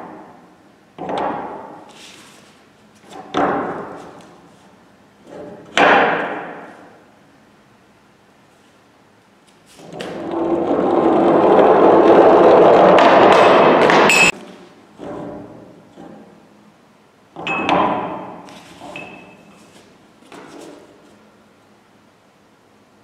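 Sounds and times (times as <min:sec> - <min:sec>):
cylinders rolling on wooden board: 0:09.9 - 0:14.1
metal clank with ringing: 0:17.4 - 0:18.3, 0:18.9 - 0:19.4.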